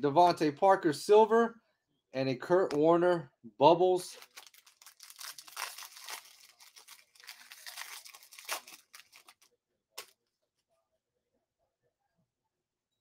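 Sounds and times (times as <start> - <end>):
foil wrapper tearing and crinkling: 4.2 - 10.1.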